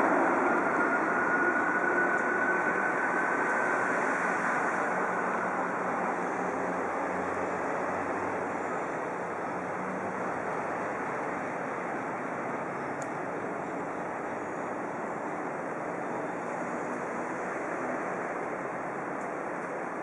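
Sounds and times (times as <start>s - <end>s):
electric train rushing noise: 0.0s - 20.0s
high train whine: 0.0s - 20.0s.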